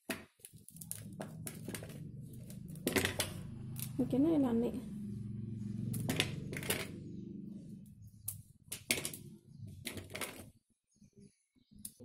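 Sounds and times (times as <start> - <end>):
brittle candy cracking: 0.0 - 3.9.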